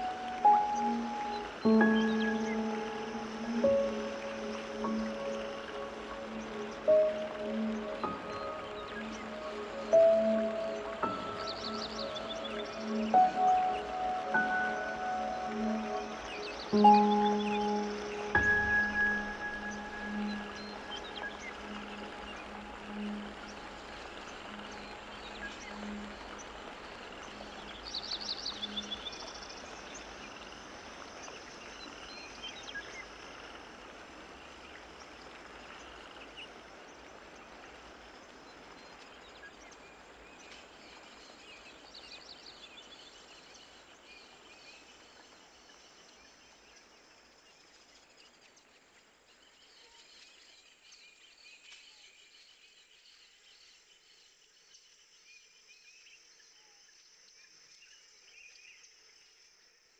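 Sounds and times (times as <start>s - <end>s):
background hiss: 0.0s - 59.9s.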